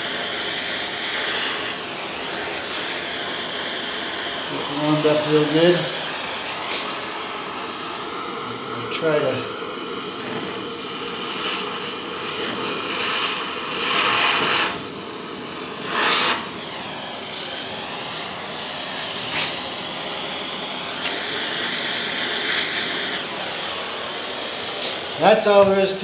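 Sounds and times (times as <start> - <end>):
propane torch hissing: 0.0 - 26.0.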